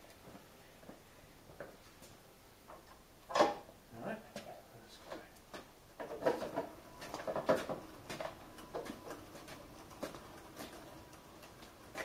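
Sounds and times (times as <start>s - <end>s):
wheel dollies clicking and creaking: 6.2s - 12.0s.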